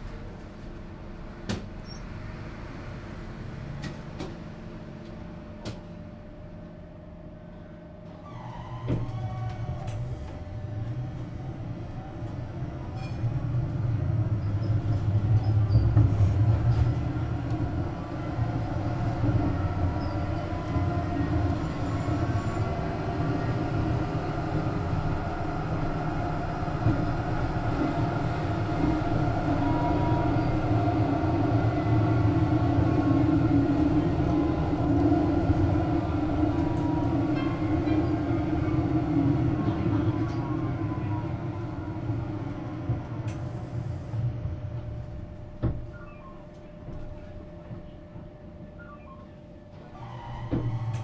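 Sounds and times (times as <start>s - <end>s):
tram running with whine: 0.0s - 51.0s.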